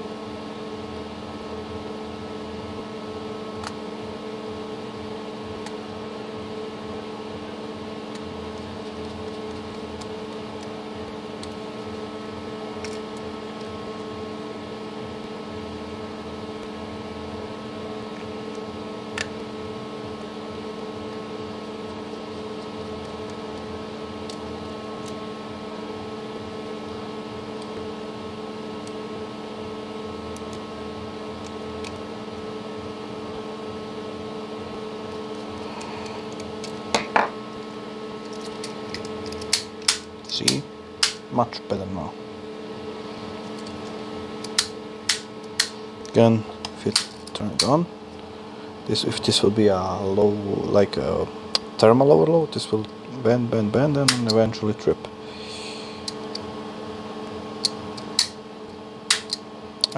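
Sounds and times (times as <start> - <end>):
machine hum: 0.0 - 59.9
clicks of small parts: 59.1 - 59.9.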